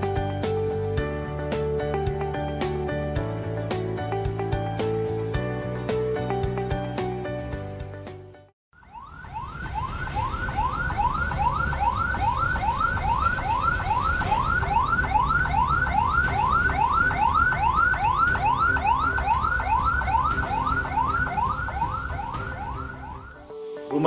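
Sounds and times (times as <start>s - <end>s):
ambulance siren yelping: 8.8s - 23.7s.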